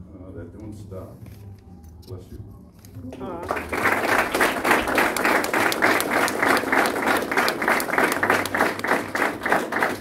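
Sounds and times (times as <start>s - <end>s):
people clapping in rhythm: 3.1s - 10.0s.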